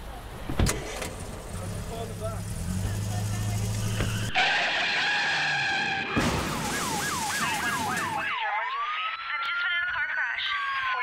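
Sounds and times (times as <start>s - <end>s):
high-pitched screech: 3.8s - 8.1s
emergency vehicle siren: 3.9s - 11.0s.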